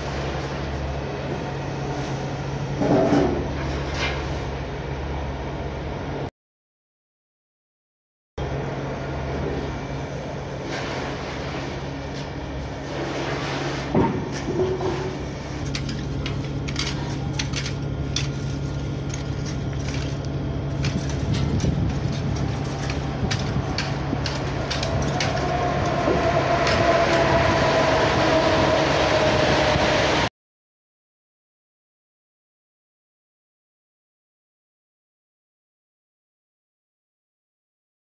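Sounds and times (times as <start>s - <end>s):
falling whine: 13.9s - 30.3s
electric train humming past: 22.4s - 30.3s
train wheel clicks: 22.8s - 27.4s.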